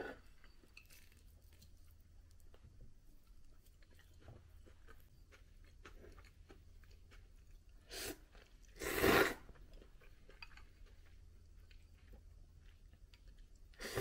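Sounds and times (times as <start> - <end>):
faint chewing: 0.0 - 14.0
noodles slurped: 7.9 - 9.6.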